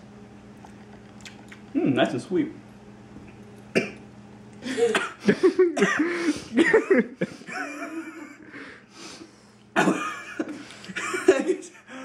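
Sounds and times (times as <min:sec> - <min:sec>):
man coughing: 0:03.7 - 0:04.0, 0:04.7 - 0:08.0, 0:09.8 - 0:11.8.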